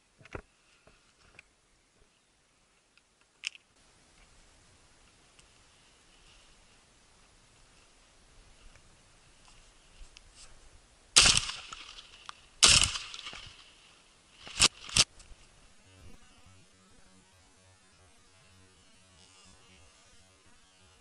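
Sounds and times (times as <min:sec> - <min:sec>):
shotgun shots echoing: 0:11.2 - 0:11.9, 0:12.6 - 0:13.5.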